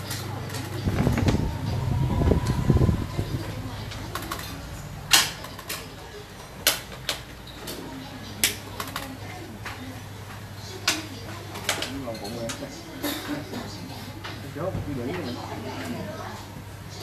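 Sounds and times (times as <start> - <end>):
steady low hum: 0.0 - 5.4.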